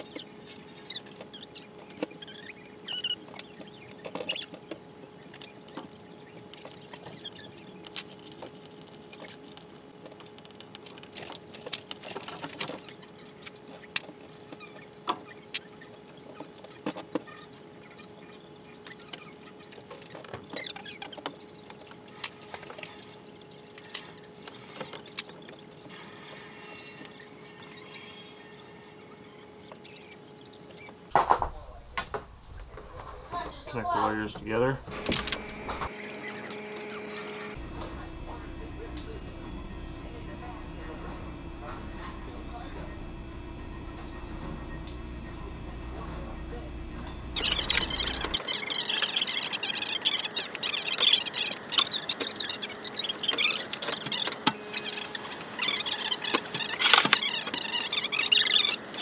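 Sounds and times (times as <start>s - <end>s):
steady faint hum: 28.7s - 59.0s.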